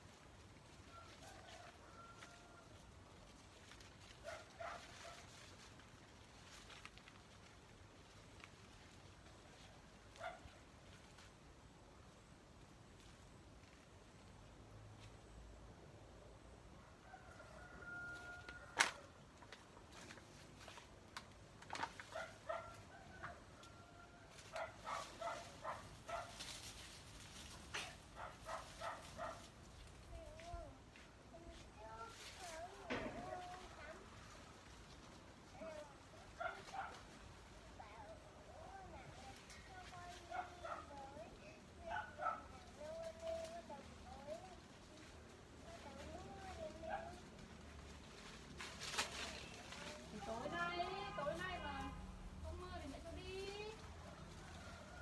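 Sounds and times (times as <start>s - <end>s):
dog barking: 4.2s - 5.2s, 22.1s - 23.0s, 24.5s - 26.4s, 27.8s - 29.4s, 36.4s - 37.0s, 41.9s - 42.5s.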